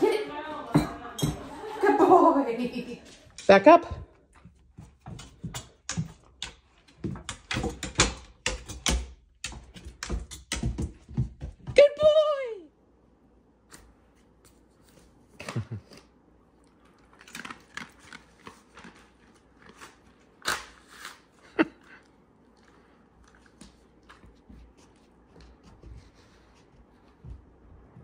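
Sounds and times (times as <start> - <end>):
dog chewing a treat: 16.5 - 20.1.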